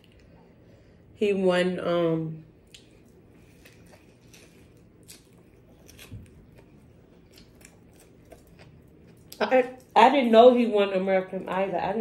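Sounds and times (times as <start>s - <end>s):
faint chewing: 2.6s - 10.0s.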